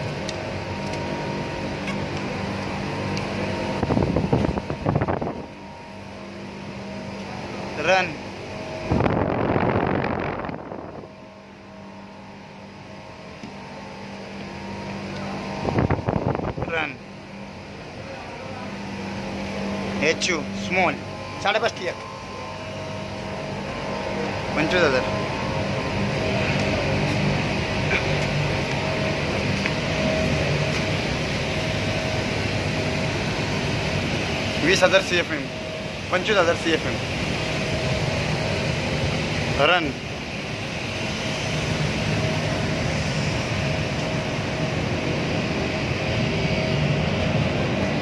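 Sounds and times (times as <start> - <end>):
air conditioning units humming: 0.0 - 48.0
wind rushing on microphone: 3.8 - 5.4, 8.9 - 11.2, 15.6 - 16.7.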